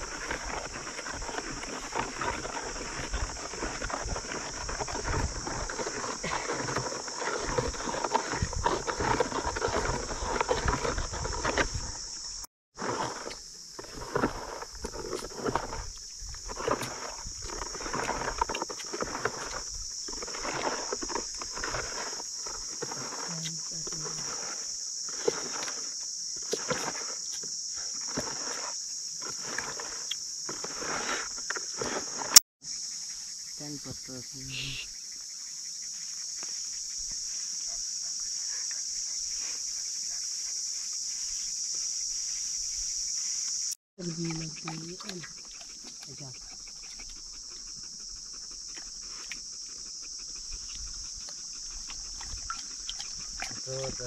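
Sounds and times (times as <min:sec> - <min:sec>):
stick stirring thick paint: 0:00.0 - 0:12.2, 0:12.8 - 0:32.4
high-pitched insect drone: 0:28.7 - 0:54.0
dog lapping water: 0:44.0 - 0:49.5, 0:50.1 - 0:54.0.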